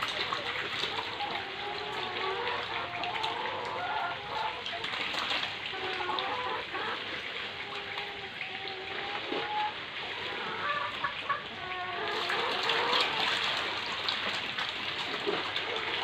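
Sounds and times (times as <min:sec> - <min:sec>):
hens clucking: 0:00.0 - 0:14.1, 0:15.1 - 0:16.0
water splashing and churning: 0:00.0 - 0:16.0.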